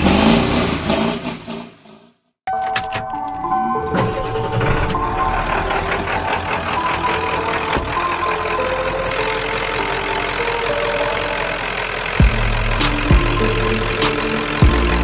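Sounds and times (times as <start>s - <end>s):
diesel engine idling with clatter: 4.1s - 15.0s.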